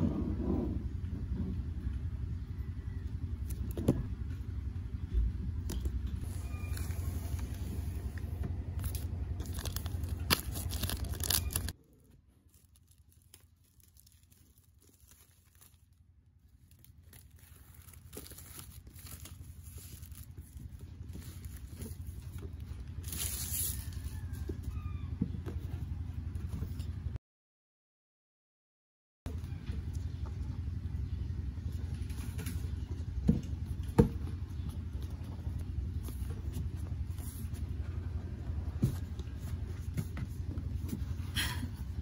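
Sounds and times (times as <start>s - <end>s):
low steady hum: 0.0s - 27.2s, 29.3s - 42.0s
packaging crinkling and tearing: 6.2s - 24.4s.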